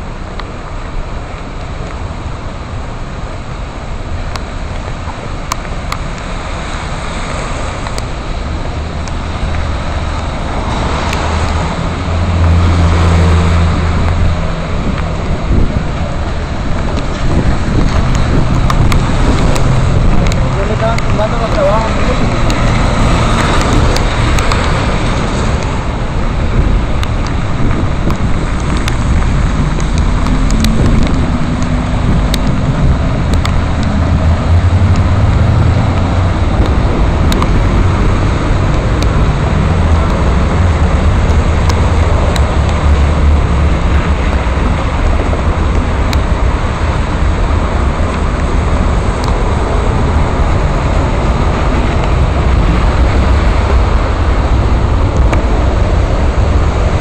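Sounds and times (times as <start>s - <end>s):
low street rumble: 0.0s - 57.0s
rain hiss: 0.0s - 57.0s.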